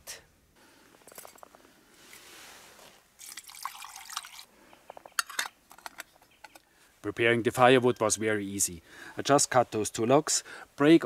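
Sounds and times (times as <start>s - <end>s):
water trickling into cup: 3.2s - 4.5s
metal lid clinks: 5.2s - 6.6s.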